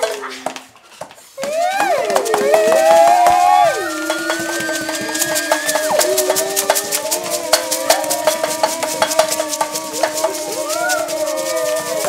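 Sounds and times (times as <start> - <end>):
shaker rattling: 0.0 - 12.0
sliding pitched notes: 2.5 - 12.0.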